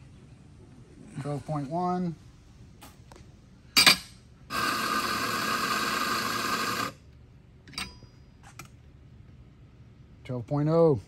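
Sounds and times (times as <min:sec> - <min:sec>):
espresso grinder running: 0:04.5 - 0:07.0.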